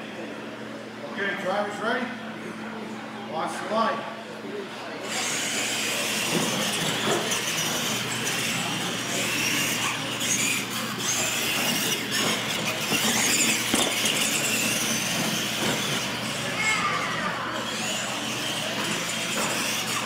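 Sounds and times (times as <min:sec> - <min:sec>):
toy truck electric motor whine: 0:05.0 - 0:20.0
tyres on concrete: 0:05.1 - 0:16.8.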